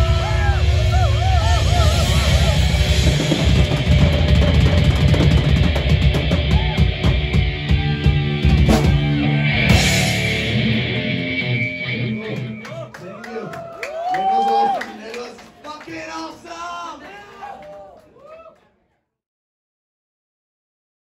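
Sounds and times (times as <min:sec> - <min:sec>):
fast drums and crashing cymbals: 0:00.0 - 0:10.8
distorted electric guitars: 0:00.0 - 0:12.7.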